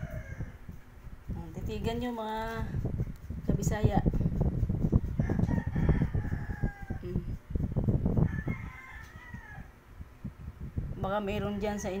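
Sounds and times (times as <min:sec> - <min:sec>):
rooster crowing: 0:00.0 - 0:00.7, 0:05.2 - 0:07.0, 0:08.2 - 0:09.8.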